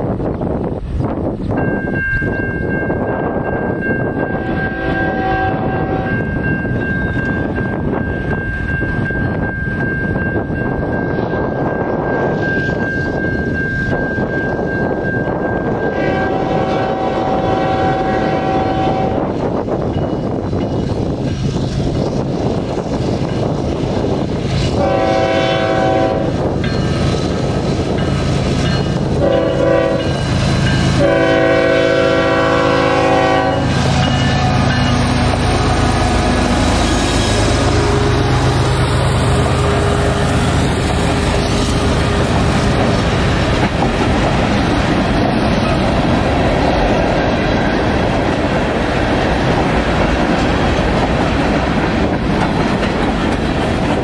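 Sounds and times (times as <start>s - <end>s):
diesel locomotive passing: 0.0s - 54.0s
train air horn blasts: 4.4s - 6.3s, 15.8s - 19.3s, 24.7s - 26.4s, 29.2s - 30.2s, 30.8s - 38.7s.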